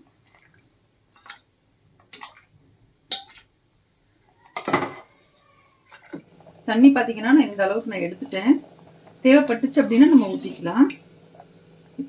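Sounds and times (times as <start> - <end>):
utensil scraping pot: 5.8 - 12.0.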